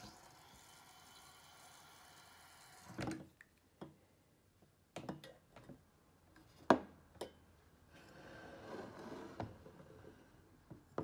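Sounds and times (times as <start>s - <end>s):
liquid pouring from tap: 0.0s - 3.1s.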